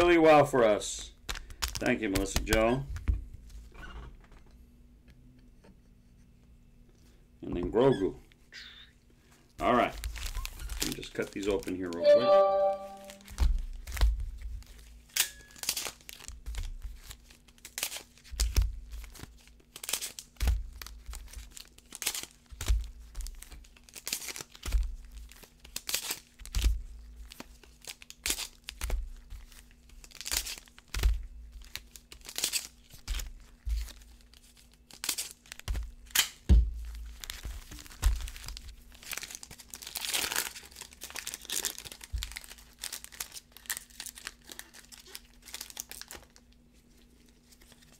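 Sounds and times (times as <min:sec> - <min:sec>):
foil wrappers crinkling: 0:01.1 - 0:02.7, 0:09.8 - 0:12.0, 0:13.1 - 0:36.2, 0:36.8 - 0:47.9.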